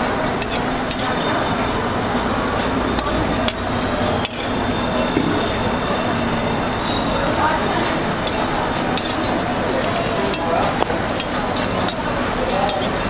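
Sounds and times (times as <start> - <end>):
food sizzling on a griddle: 0.0 - 4.6, 8.2 - 13.0
metal spatula striking griddle: 0.4 - 1.3, 3.0 - 4.6, 8.2 - 13.0.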